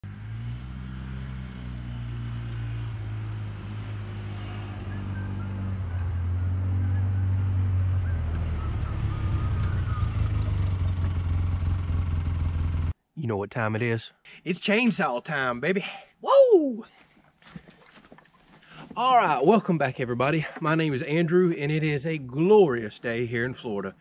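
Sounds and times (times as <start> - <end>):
utility vehicle engine running: 0.0 - 13.0.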